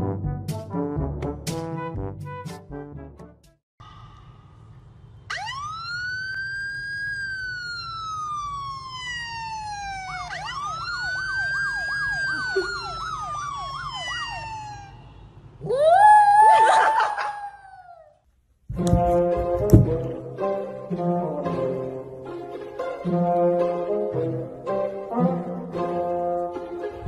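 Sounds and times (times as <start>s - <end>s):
siren wailing: 5.3s - 18.1s
siren yelp: 5.3s - 18.1s.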